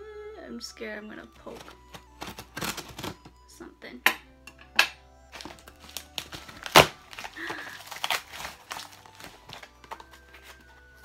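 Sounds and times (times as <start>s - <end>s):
tape and cardboard ripping: 1.5s - 3.3s, 5.4s - 10.6s.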